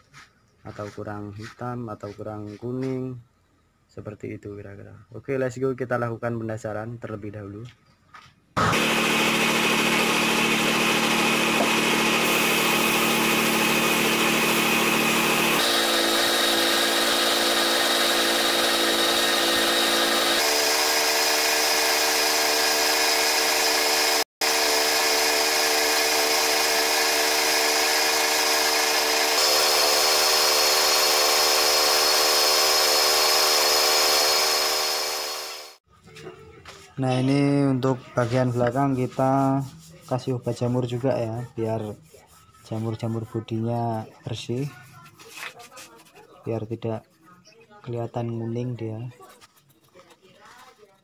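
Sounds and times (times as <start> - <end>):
air compressor running: 8.6 - 35.8
spray gun hissing: 12.1 - 15.4.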